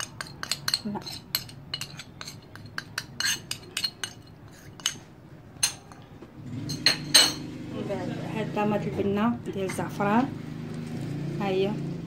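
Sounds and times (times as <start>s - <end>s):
spoon clinking on ceramic dishes: 0.0s - 6.0s, 6.7s - 7.5s.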